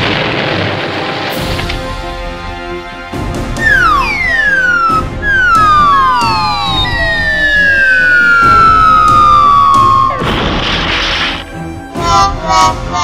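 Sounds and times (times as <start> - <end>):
background music: 0.1 - 13.0
whistle gliding down in pitch: 3.6 - 10.2
cartoon crash: 3.6 - 11.4.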